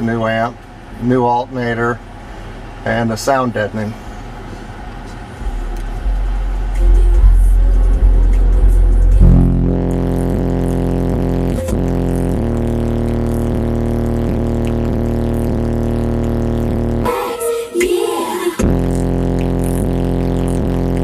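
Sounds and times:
subwoofer bass-heavy song: 5.4s - 21.0s.

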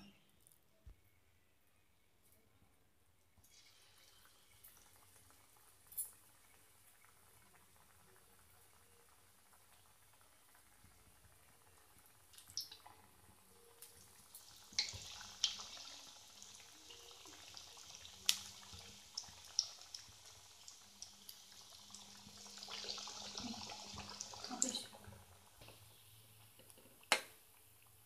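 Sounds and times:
food sizzling in hot oil: 13.8s - 26.6s.

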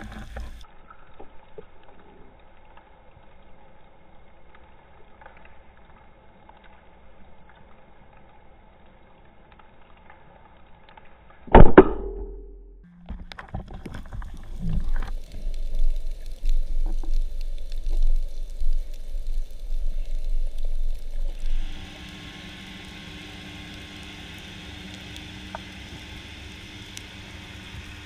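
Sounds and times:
faint underwater hum: 0.0s - 11.4s, 12.1s - 28.0s
speargun firing crack: 11.5s - 12.7s.

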